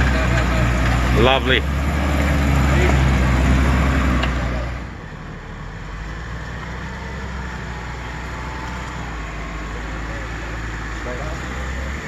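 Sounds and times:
engine hum crawling over rocks: 0:00.0 - 0:12.0
loud engine running: 0:00.0 - 0:12.0.

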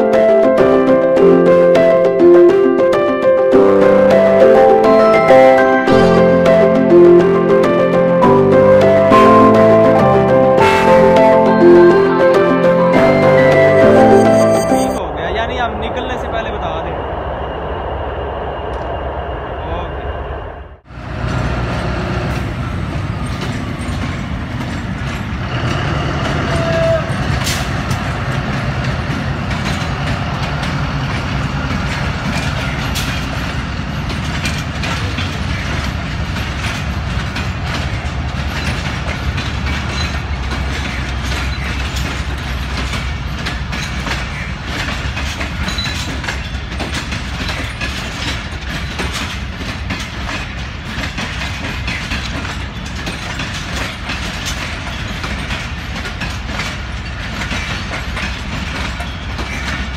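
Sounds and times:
train coaches rumbling: 0:00.0 - 0:59.9
wheels clicking over rail joints: 0:21.0 - 0:59.9.

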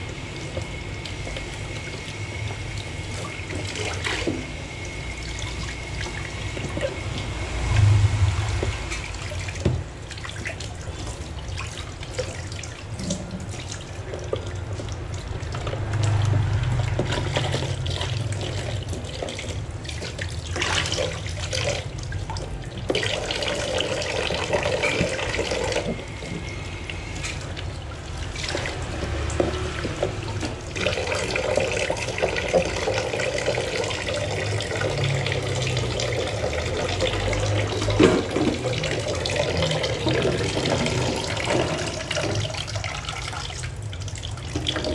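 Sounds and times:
tap water splashing into sink: 0:05.2 - 0:26.5, 0:27.2 - 0:44.9.

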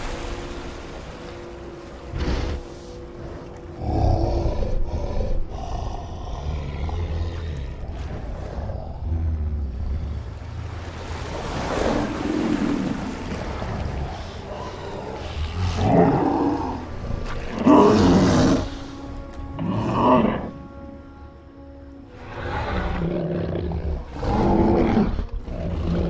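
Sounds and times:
water churning: 0:00.0 - 0:04.8, 0:07.1 - 0:20.9
creature growling deeply: 0:03.8 - 0:10.2.

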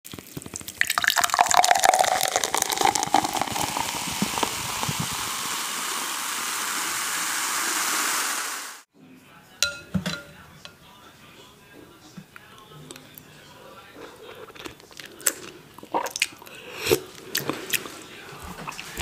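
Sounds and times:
water-like hissing: 0:02.6 - 0:08.9
spoon clinking on glass bowl: 0:09.6 - 0:10.4.

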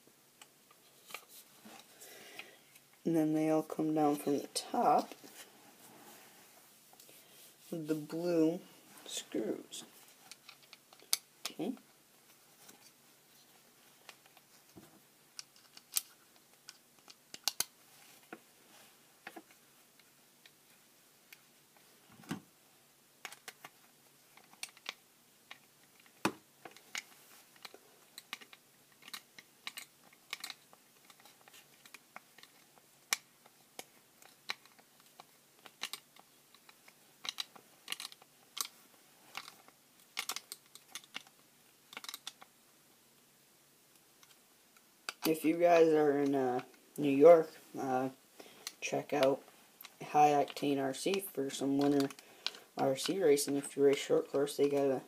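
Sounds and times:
plastic parts clicking and tapping: 0:10.2 - 0:11.6, 0:14.0 - 0:17.7, 0:23.2 - 0:42.5, 0:44.2 - 0:45.3.

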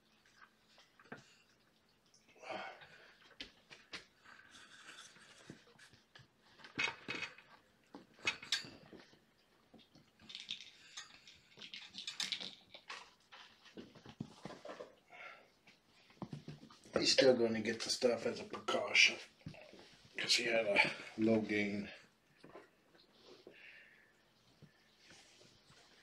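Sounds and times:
rustling: 0:03.0 - 0:26.0
objects clicking and knocking: 0:06.5 - 0:09.2, 0:09.8 - 0:15.0.

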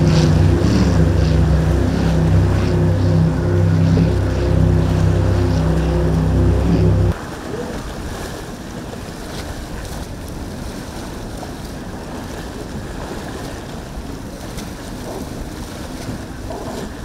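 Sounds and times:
wind buffeting microphone: 0:00.0 - 0:07.2
distant boat engines: 0:00.0 - 0:08.9
surf: 0:00.0 - 0:17.0.

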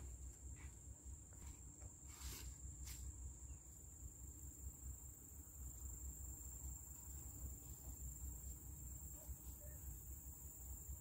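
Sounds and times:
high-pitched cricket trill: 0:00.0 - 0:11.0.

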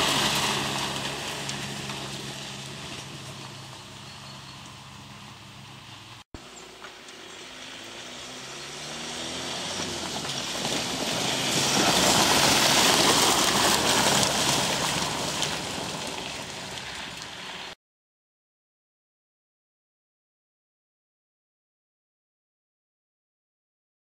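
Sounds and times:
diesel pickup engine: 0:00.0 - 0:17.8
tyres crunching on gravel: 0:00.0 - 0:17.8.

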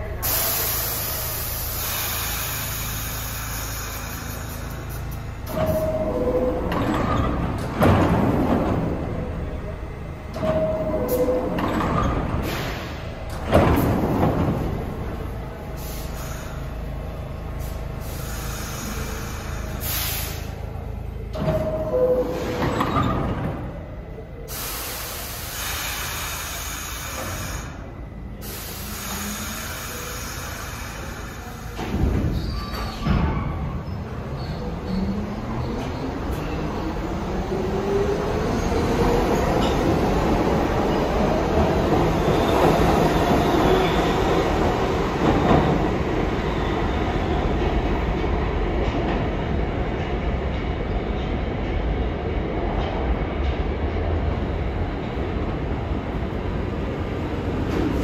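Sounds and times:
standing train rumble: 0:00.0 - 0:58.0
train doors sliding shut: 0:00.2 - 0:09.2, 0:10.3 - 0:16.7, 0:17.6 - 0:23.8, 0:24.5 - 0:48.3.

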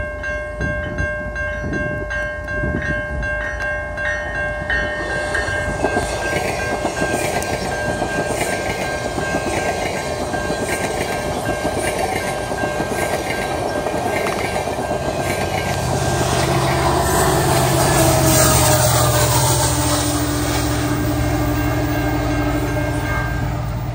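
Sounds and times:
diesel locomotive engine drone: 0:00.0 - 0:23.9
train wheels clattering over rails: 0:04.8 - 0:23.9.

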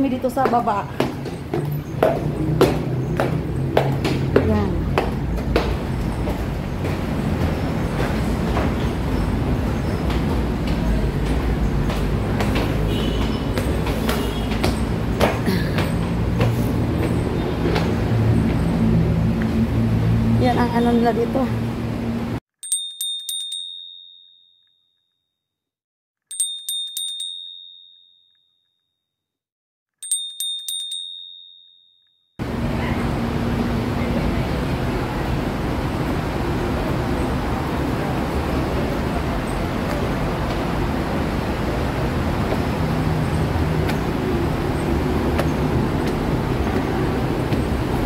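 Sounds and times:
monorail train rumbling: 0:01.4 - 0:12.9, 0:32.4 - 0:48.0
small high-pitched bell ringing: 0:22.6 - 0:24.9, 0:26.3 - 0:28.6, 0:30.0 - 0:32.2.

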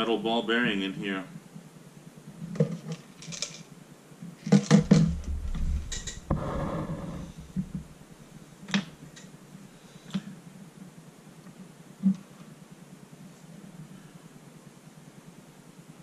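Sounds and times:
plastic parts clicking and knocking: 0:02.6 - 0:03.7, 0:04.4 - 0:06.3.

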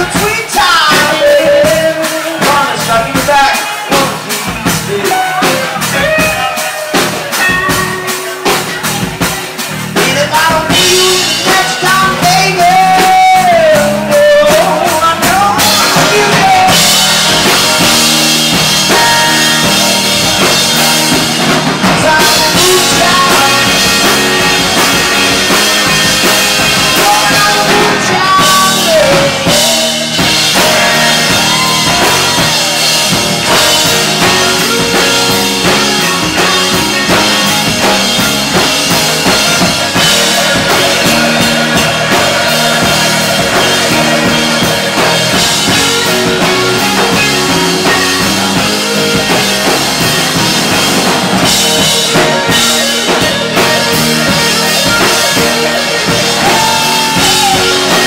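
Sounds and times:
person singing: 0:00.0 - 0:50.5, 0:51.4 - 0:58.0
live rock band playing: 0:00.0 - 0:58.0.

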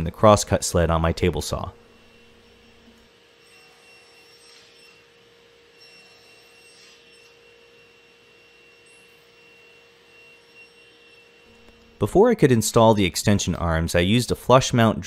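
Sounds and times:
table saw whining: 0:01.1 - 0:13.3
saw blade cutting wood: 0:02.0 - 0:11.9.

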